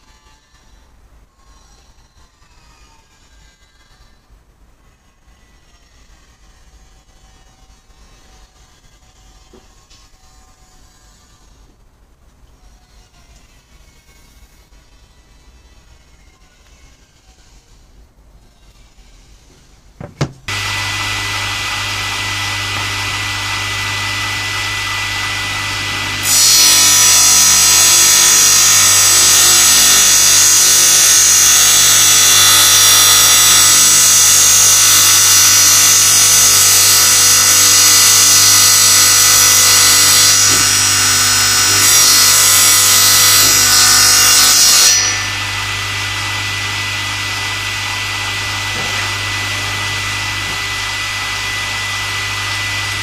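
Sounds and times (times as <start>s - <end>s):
saw ripping wooden board: 20.1s - 53.0s
table saw motor running: 20.2s - 53.0s.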